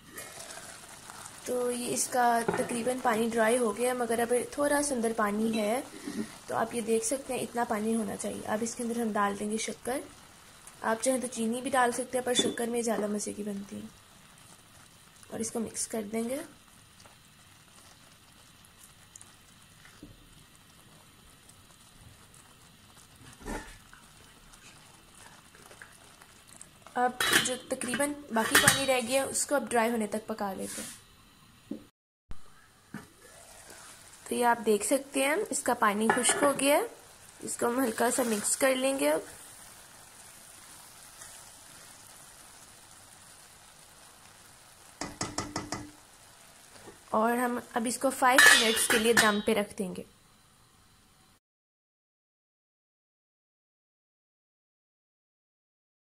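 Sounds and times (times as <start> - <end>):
faint hiss of noodles cooking: 0.0 - 31.8, 32.4 - 51.4
faint bubbling of simmering water: 0.0 - 51.4
spoon stirring in steel pan: 0.1 - 3.3, 23.2 - 29.2, 44.9 - 46.0, 48.3 - 49.5.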